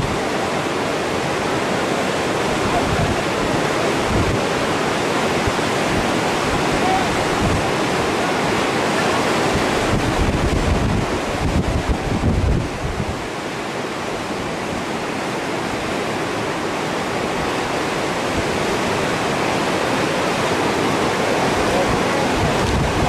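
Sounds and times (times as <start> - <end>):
whitewater rushing: 0.0 - 23.0
wind buffeting microphone: 2.5 - 8.2, 8.8 - 13.4, 17.4 - 23.0.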